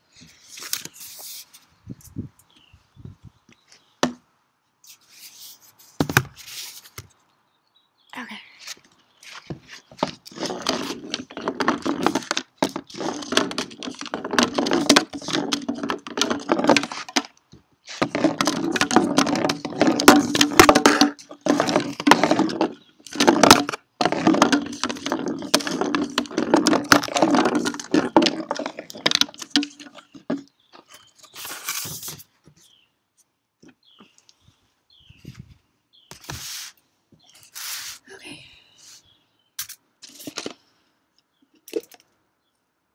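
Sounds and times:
rocks rattling inside a can: 9.3s - 32.2s, 39.6s - 40.6s
can rumbling over wooden boards: 9.5s - 32.2s.

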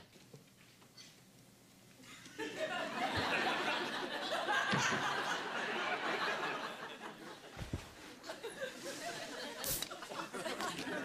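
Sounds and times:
studio audience laughing: 2.1s - 11.0s.

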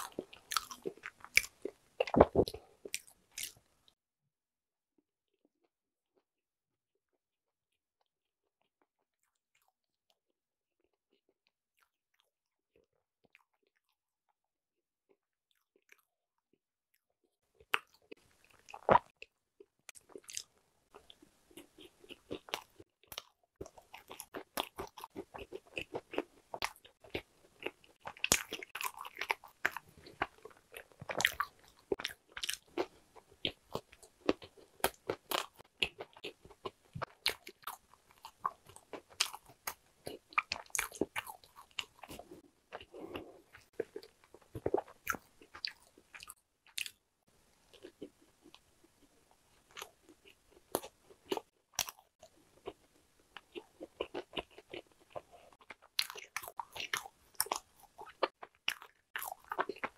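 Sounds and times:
crisp crunchy chewing: 0.0s - 3.7s, 17.5s - 47.0s, 47.6s - 59.9s.

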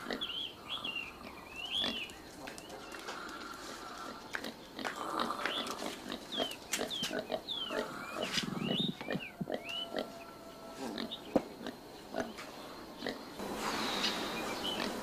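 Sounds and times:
low animal grunt: 3.2s - 6.5s.

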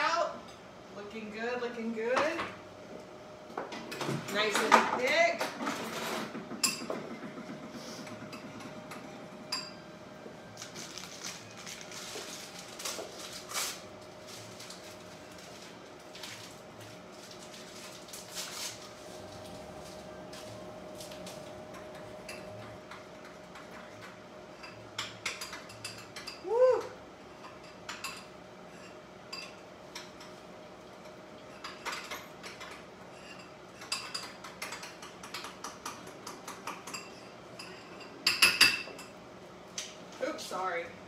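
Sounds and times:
utensils and dishes clinking: 3.7s - 9.9s, 10.5s - 26.6s, 27.3s - 30.4s, 31.0s - 39.2s
short high cry: 26.4s - 27.0s.

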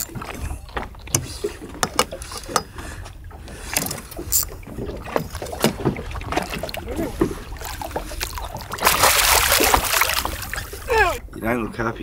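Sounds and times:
water slapping boat hull: 0.0s - 12.0s.

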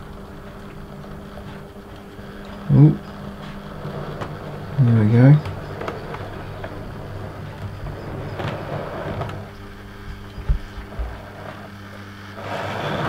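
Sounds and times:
wheel clicks over rail joints: 0.0s - 11.7s
model train motor humming: 0.0s - 13.0s.

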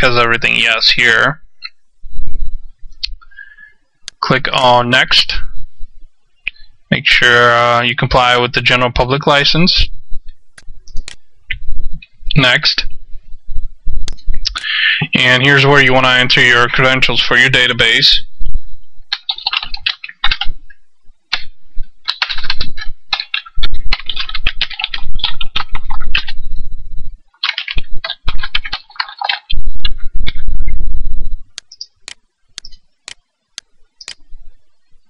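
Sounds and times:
sharp clicks: 10.6s - 12.1s, 19.1s - 26.4s, 31.5s - 34.2s
computer keyboard typing: 19.1s - 26.5s, 27.4s - 30.5s, 31.5s - 32.8s.

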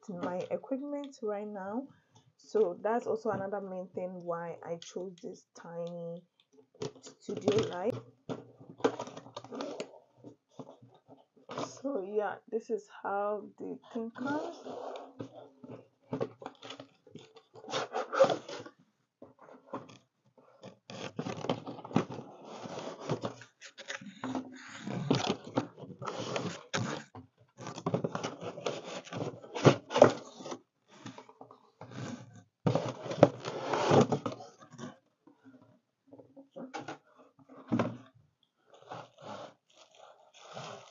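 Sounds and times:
cardboard scraping and rubbing: 14.2s - 16.9s, 17.6s - 18.7s, 20.6s - 34.9s, 38.7s - 40.9s.

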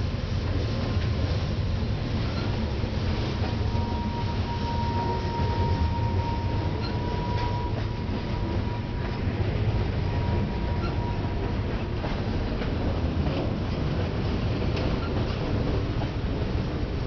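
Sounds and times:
train wheels rumbling and clacking: 0.0s - 17.0s
high wheel squeal: 3.6s - 9.3s, 10.0s - 11.5s.

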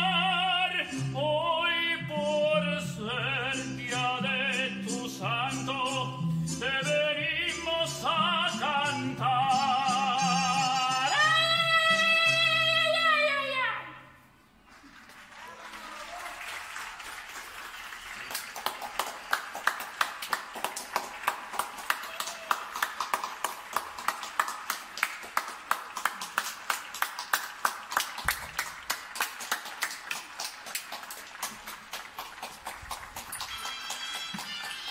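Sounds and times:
man clapping hands: 15.0s - 34.9s.

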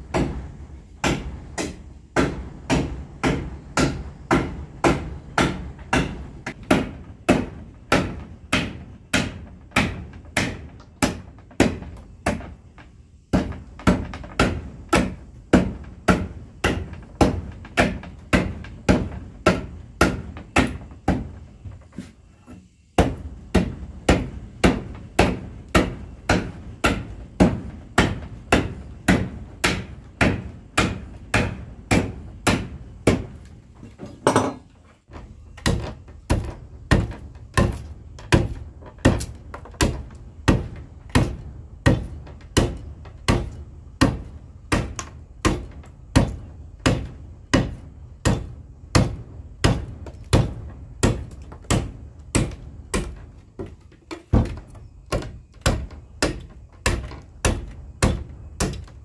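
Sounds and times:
hammer striking: 1.0s - 12.5s, 34.0s - 34.7s.

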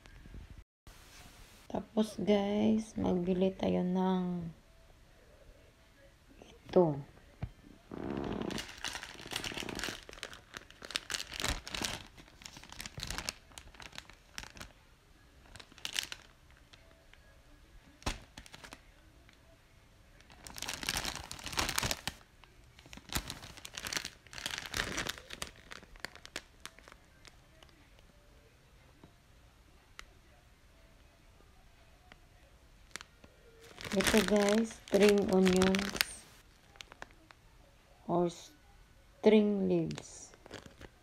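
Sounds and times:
plastic packaging crinkling: 8.3s - 14.7s, 15.4s - 16.7s, 18.0s - 18.8s, 20.2s - 27.7s, 32.9s - 37.2s, 40.3s - 41.0s.

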